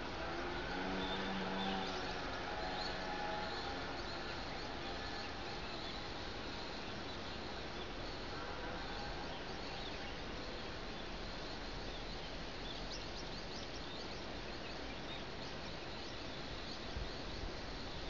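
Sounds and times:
outdoor background hiss: 0.0 - 18.0.

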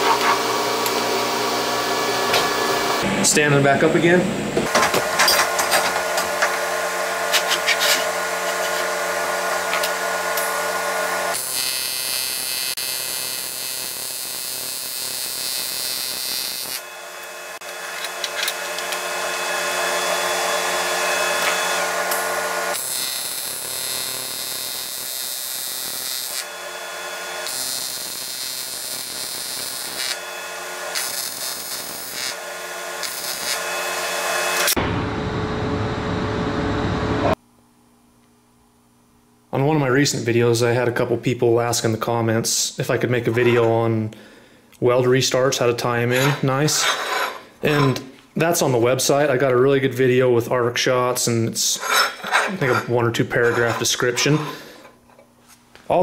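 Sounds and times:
welding arc buzzing: 0.0 - 3.5, 4.1 - 34.9.

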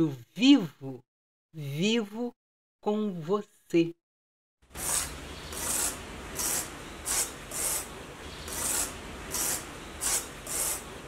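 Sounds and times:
rasping scraping strokes: 4.7 - 11.0.

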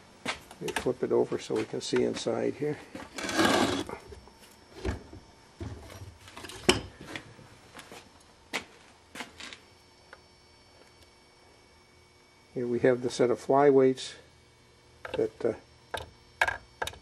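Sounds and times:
metal housing scraping: 2.9 - 4.0.

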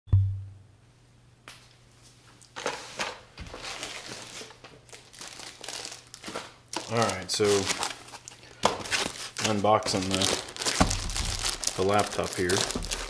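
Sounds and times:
sharp thump: 0.1 - 0.6
packaging rustling and crinkling: 2.6 - 13.0.

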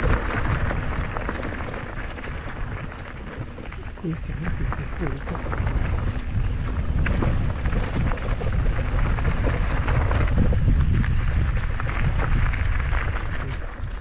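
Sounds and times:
bike clicking and rattling: 0.0 - 14.0
low rumble: 0.0 - 14.0
wind buffeting microphone: 0.0 - 14.0.

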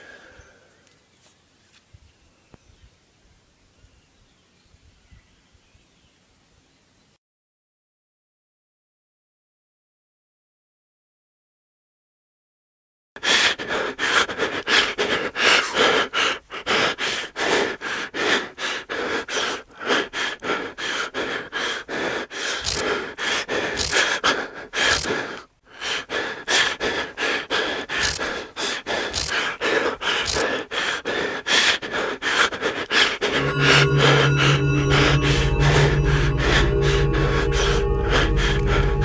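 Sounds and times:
person breathing hard: 0.0 - 0.8, 13.2 - 39.0.

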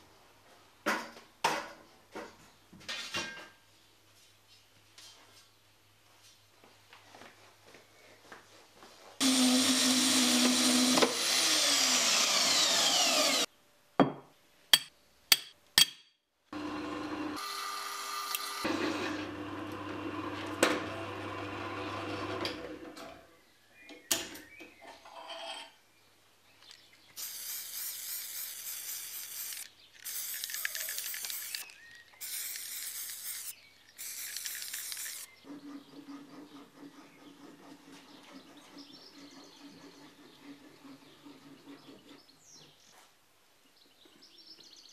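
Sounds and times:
chop saw cutting steel: 9.2 - 13.5
drill press boring steel: 9.2 - 13.5
short bursts of hissing: 27.2 - 35.3.

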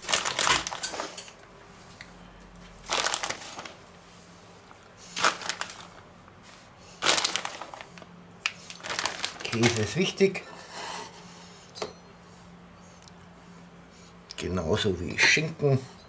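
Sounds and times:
plastic bag crinkling: 0.0 - 1.3, 2.7 - 6.1, 7.0 - 10.3.

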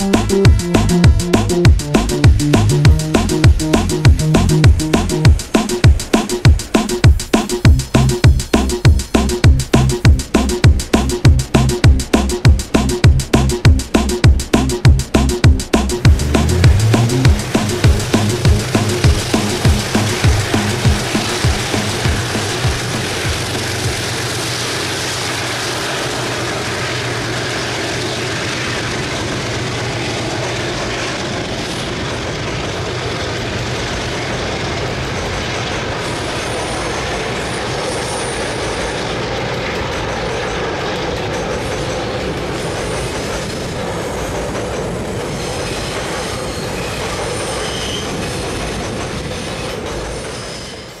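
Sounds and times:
low engine drone: 0.0 - 35.9
train wheels rumbling on rails: 0.0 - 51.0
faint wheel squeal: 45.3 - 48.5, 49.3 - 51.0.

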